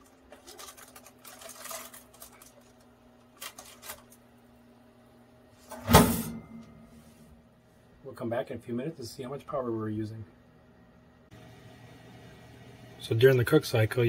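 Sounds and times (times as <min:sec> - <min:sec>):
low steady hum: 0:00.0 - 0:14.0
oven glass door shutting: 0:05.7 - 0:07.1.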